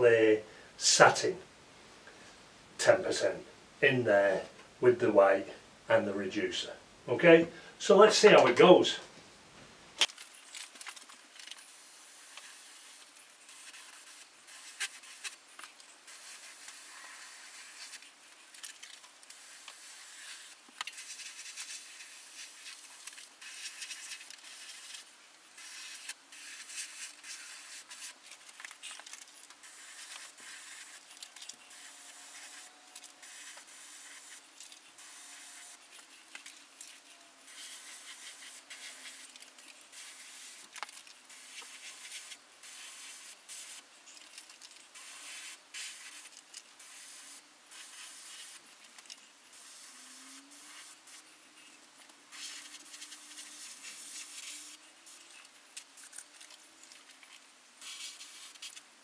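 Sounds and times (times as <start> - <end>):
spray gun hissing in bursts: 11.7 - 15.4, 16.1 - 18.0, 19.3 - 25.0, 25.6 - 28.2, 29.6 - 31.0, 31.7 - 35.9, 37.5 - 39.3, 39.9 - 40.7, 41.3 - 43.8, 45.0 - 48.6, 49.5 - 51.2, 52.3 - 55.2, 57.8 - 58.6.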